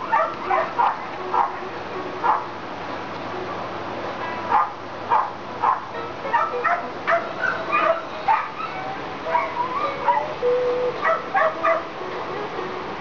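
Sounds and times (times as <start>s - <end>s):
dog whining: 0.0s - 1.6s, 5.6s - 11.9s
dogs barking and yipping: 0.0s - 2.6s, 4.3s - 12.0s.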